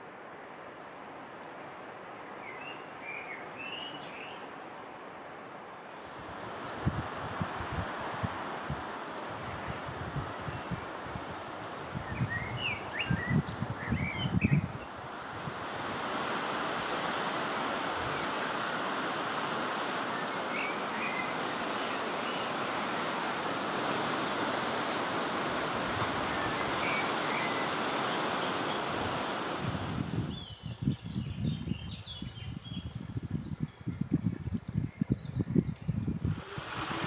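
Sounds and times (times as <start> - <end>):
wind buffeting microphone: 6.2 - 37.0
small birds chirping: 20.2 - 23.1, 26.3 - 28.9, 30.3 - 36.9.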